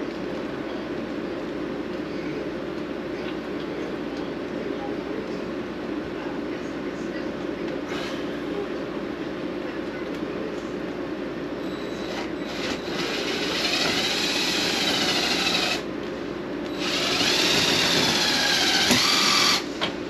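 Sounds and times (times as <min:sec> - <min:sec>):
cordless drill whining under load: 0:11.8 - 0:15.9, 0:16.7 - 0:19.7.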